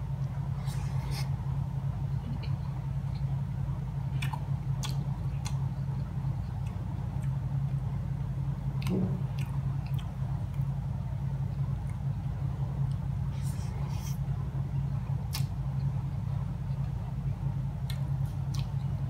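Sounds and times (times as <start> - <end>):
steady low hum: 0.0 - 19.0
man chewing food: 0.1 - 19.0.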